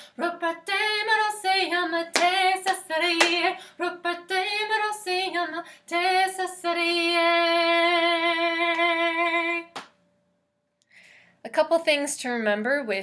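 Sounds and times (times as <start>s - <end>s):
woman singing unaccompanied: 0.0s - 9.8s.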